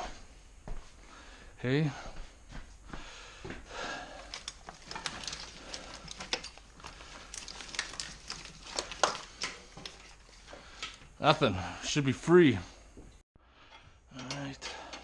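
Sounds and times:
gloved hand rustling wiring: 3.7 - 11.2.

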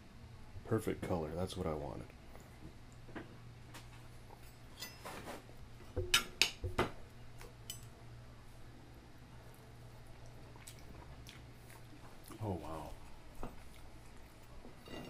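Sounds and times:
cutlery clinking on plate: 7.6 - 7.9.

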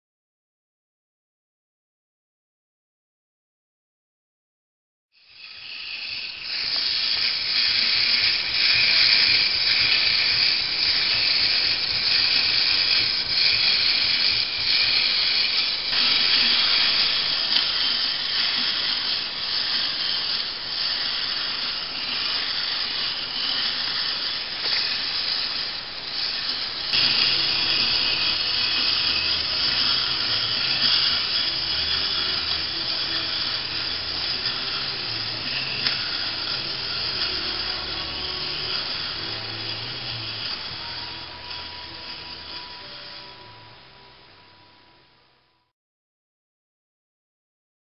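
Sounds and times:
toy robot gears whirring: 5.2 - 45.7
low hum: 26.9 - 45.7.

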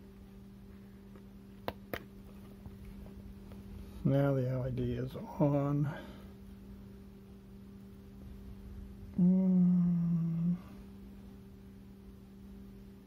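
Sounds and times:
faint low hum: 0.0 - 13.0
man humming: 9.1 - 10.9.

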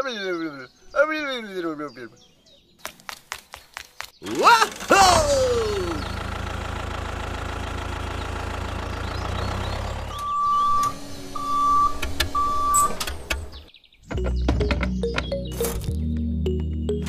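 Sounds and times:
tractor engine hum: 4.2 - 15.8
reversing beeps: 10.2 - 13.0.

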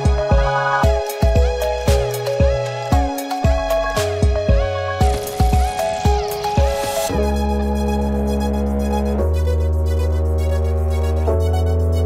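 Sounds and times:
electronic music with kick drum: 0.0 - 12.0
deep synth bass chord: 7.1 - 12.0.

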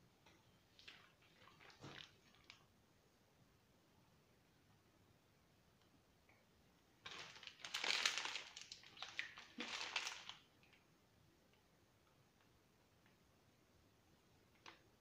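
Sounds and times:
plastic bag crinkling: 7.0 - 10.8.

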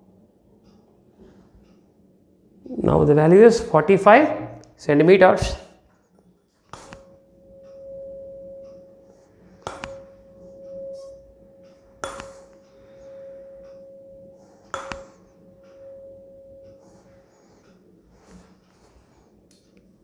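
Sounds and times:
hammer tapping tuning fork: 6.7 - 18.4
tuning fork ringing tone: 6.8 - 19.3.

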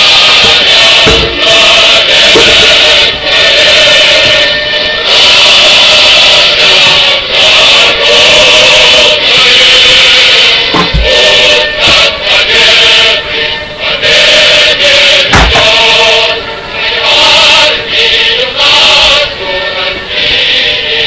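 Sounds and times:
group singing in chorus: 0.0 - 21.0
short thumps: 0.9 - 1.6, 10.7 - 12.0, 15.3 - 15.8.

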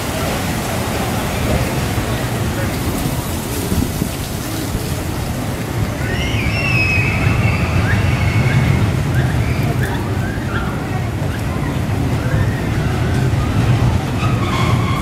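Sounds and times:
wind buffeting microphone: 0.0 - 15.0
bird whistled call: 6.0 - 10.7.

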